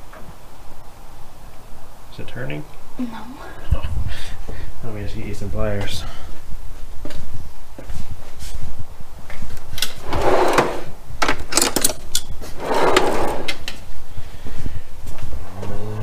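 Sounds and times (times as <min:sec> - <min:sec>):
metal drawers sliding open and shut: 0:09.8 - 0:13.7
tools rattling in drawer: 0:10.0 - 0:13.5.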